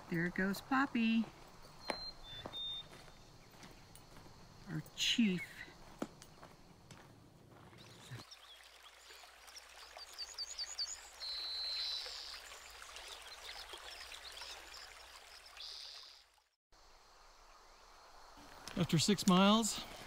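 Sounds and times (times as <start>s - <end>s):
bird calling: 1.6s - 3.8s
stream trickling over rocks: 7.6s - 16.6s.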